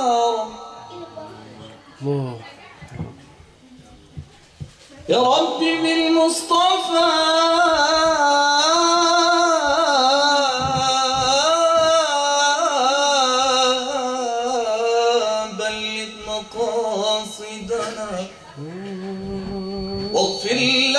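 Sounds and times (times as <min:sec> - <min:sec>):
man singing into a microphone: 0:00.0 - 0:00.9, 0:05.1 - 0:20.9.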